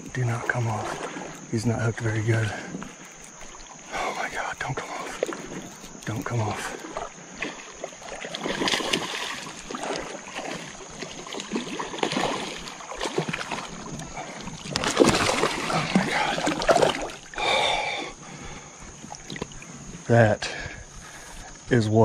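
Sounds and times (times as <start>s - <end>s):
fish splashing in water: 6.6s - 18.0s.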